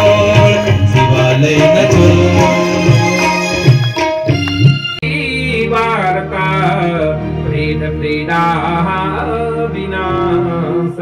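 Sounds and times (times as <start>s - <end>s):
person singing: 0.0s - 3.9s
devotional music accompaniment: 0.0s - 11.0s.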